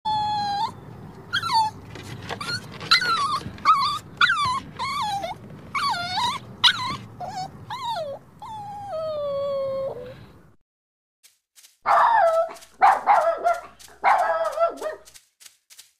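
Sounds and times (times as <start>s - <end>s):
puppy whimpering and whining: 0.1s - 10.4s.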